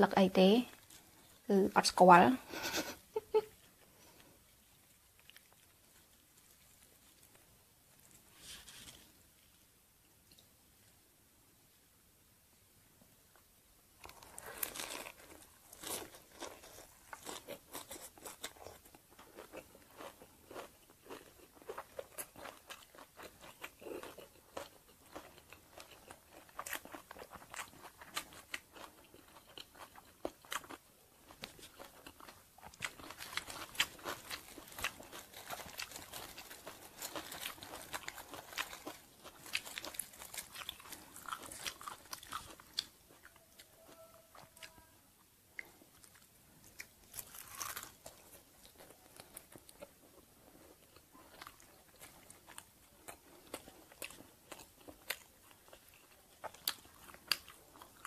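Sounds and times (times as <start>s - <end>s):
chewing and crunching: 4.0s - 9.1s, 14.0s - 44.8s, 45.5s - 58.0s
crisp crepe crackling as torn: 14.0s - 18.6s, 33.0s - 42.8s.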